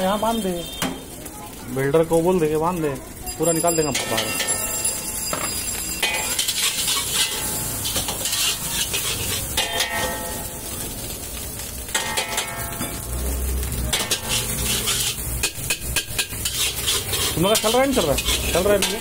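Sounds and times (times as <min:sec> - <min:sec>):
frying sizzle: 0:00.0 - 0:19.0
metal spatula scraping a wok: 0:05.5 - 0:10.7, 0:11.9 - 0:13.0, 0:13.6 - 0:19.0.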